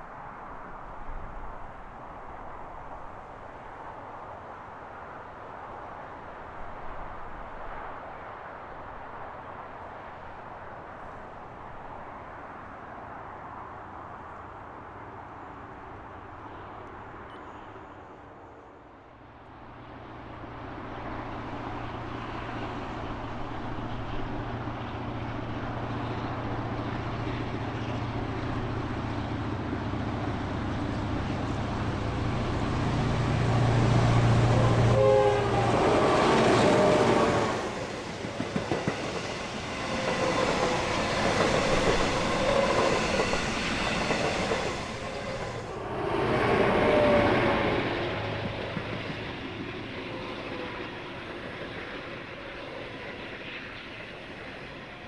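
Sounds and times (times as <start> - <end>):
diesel locomotive engine drone: 15.0 - 55.0.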